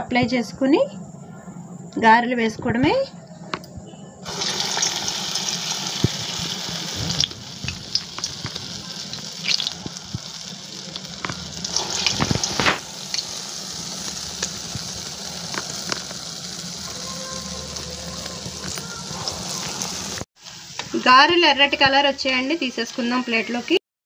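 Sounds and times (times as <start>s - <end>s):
oil crackling and popping: 4.3s - 21.0s
deep-frying sizzle in hot oil: 4.3s - 23.8s.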